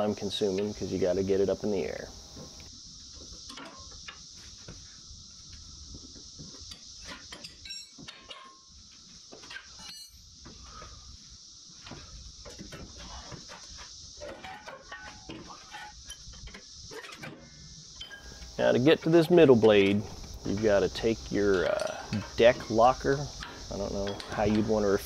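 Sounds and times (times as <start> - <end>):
cicadas droning: 0.0 - 25.0
wrenches clinking on concrete: 6.7 - 8.6, 9.5 - 10.2.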